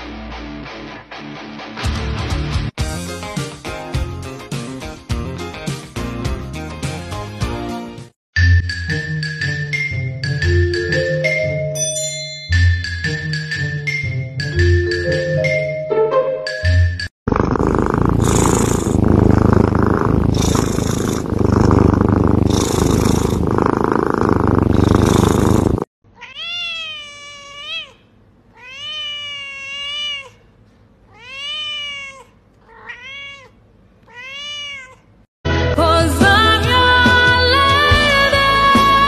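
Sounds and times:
kitten purring loudly: 17.3 - 25.9
cat meowing: 26.1 - 30.5, 31.1 - 35.1.

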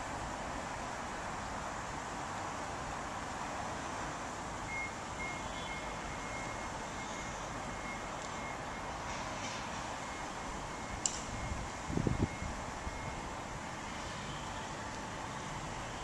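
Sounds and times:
outdoor background noise: 0.0 - 16.0
faint high-pitched tone: 4.7 - 9.2, 9.9 - 16.0.

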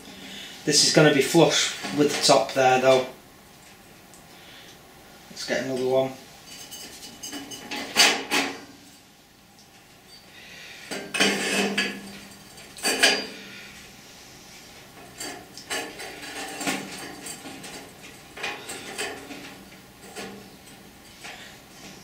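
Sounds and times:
steel tubing clanking and scraping: 5.6 - 8.7, 10.9 - 13.5, 14.9 - 22.0.

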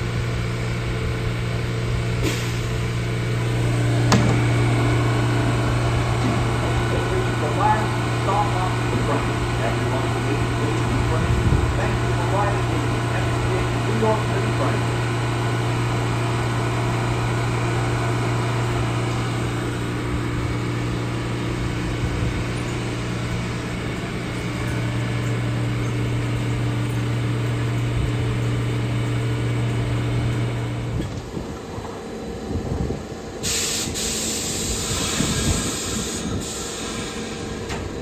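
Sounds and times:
subway train humming: 0.0 - 38.0
air hissing: 33.4 - 37.8.

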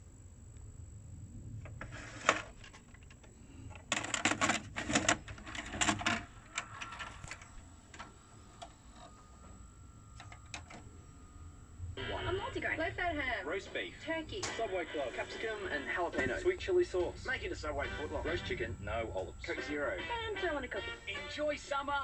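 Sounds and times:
faint motor whir: 0.0 - 22.0
tape mechanism clicking and clunking: 1.7 - 11.2.

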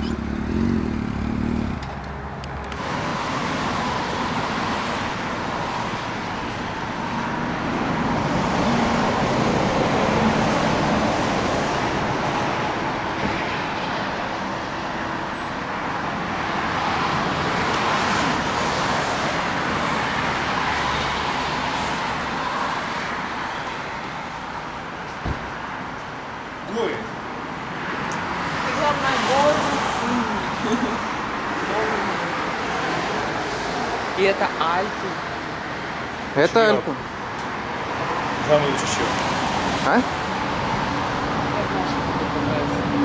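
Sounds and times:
motorway traffic rushing: 0.0 - 43.0.

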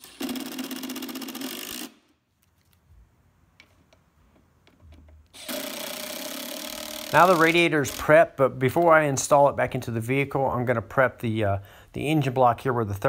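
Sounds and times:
impact driver rattling: 0.0 - 2.0, 5.3 - 8.1.

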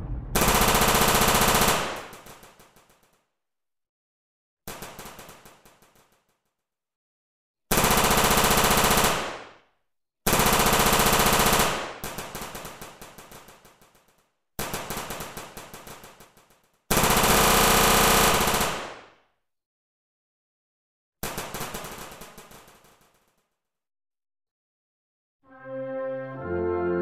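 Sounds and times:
machine-gun fire: 0.0 - 2.9, 4.7 - 6.2, 7.7 - 9.6, 10.3 - 14.0, 14.6 - 19.1, 21.2 - 23.4.

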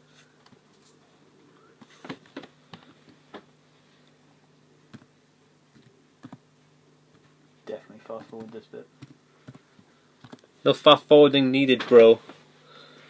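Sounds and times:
faint keyboard keystrokes: 8.1 - 9.6.

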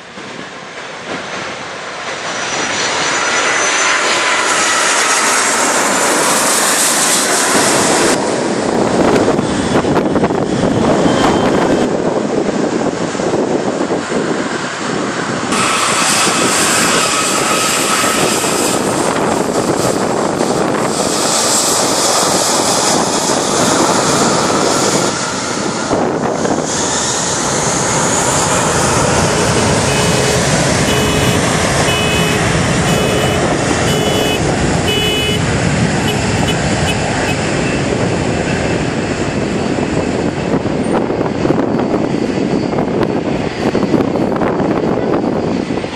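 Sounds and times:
jet engines roaring: 0.0 - 45.9
short beeps: 29.4 - 35.4, 36.0 - 37.4.

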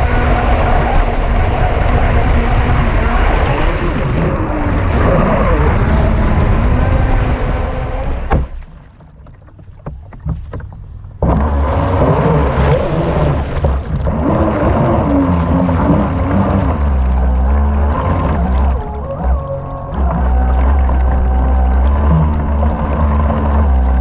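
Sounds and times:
water and wind rushing: 0.0 - 24.0
water lapping and splashes: 0.0 - 24.0
motor whine: 10.9 - 24.0.

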